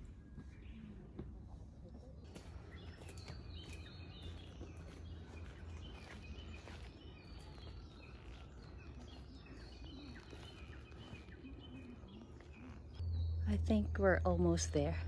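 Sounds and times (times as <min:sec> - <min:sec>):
faint bird chirps: 0:00.0 - 0:13.6
low steady rumble: 0:11.8 - 0:15.0.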